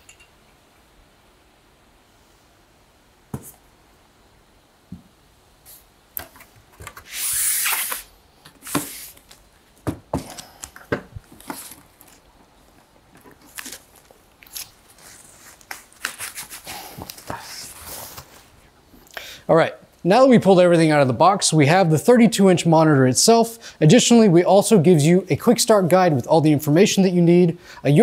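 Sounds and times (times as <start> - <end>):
plastic wrapping rustling: 7.6 - 18.6.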